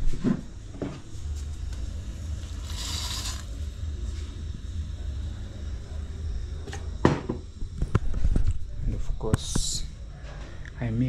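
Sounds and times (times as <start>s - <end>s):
steady low rumble: 0.5s - 10.2s
rice pouring into water: 2.4s - 3.6s.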